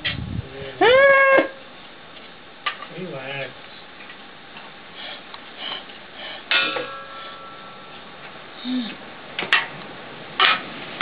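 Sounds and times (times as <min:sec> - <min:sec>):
steady hiss: 0:01.4 - 0:11.0
hand tool clanking on metal: 0:06.5 - 0:07.9, 0:10.4 - 0:10.7.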